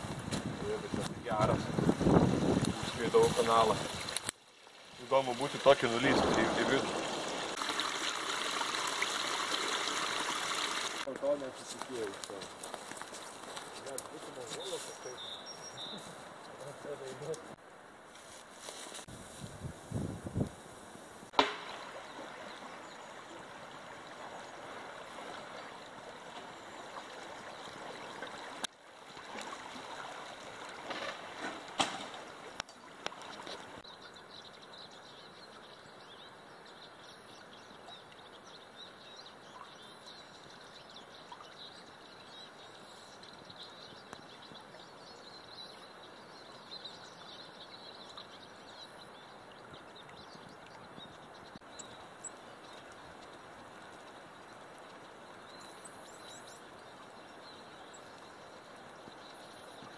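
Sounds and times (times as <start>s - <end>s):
river water rushing and babbling: 1.7s - 11.5s, 21.4s - 34.8s.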